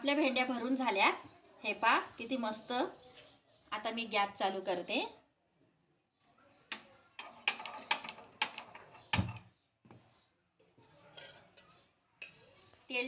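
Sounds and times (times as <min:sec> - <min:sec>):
steel pan clicks and knocks: 0:07.2 - 0:09.5.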